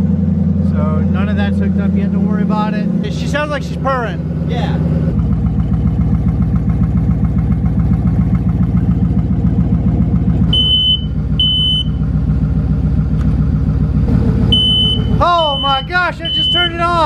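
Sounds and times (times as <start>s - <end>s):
car engine idling: 0.0s - 17.0s
smoke alarm beeping: 10.5s - 12.0s, 14.5s - 16.8s.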